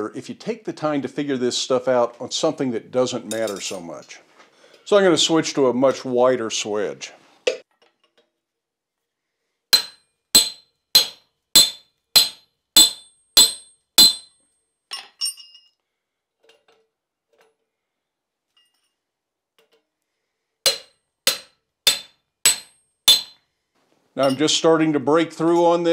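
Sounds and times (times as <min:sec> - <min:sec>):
hammer striking chisel on metal: 0:09.7 - 0:15.5, 0:20.7 - 0:23.4.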